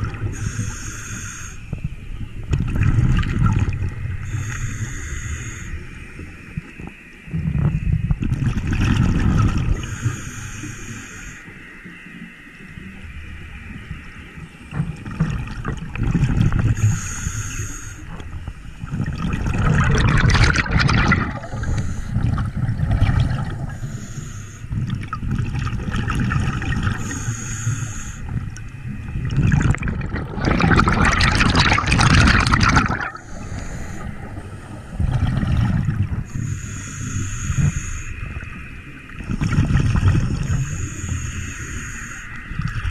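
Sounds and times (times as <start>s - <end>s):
exhaled bubbles gurgling: 0.0s - 11.6s, 12.7s - 42.9s
low rumble of moving water: 0.0s - 42.9s
regulator inhale hiss: 0.2s - 2.1s, 3.8s - 6.8s, 9.6s - 13.0s, 16.6s - 19.0s, 21.3s - 25.1s, 26.6s - 29.1s, 33.0s - 35.2s, 36.1s - 39.2s, 40.1s - 42.6s.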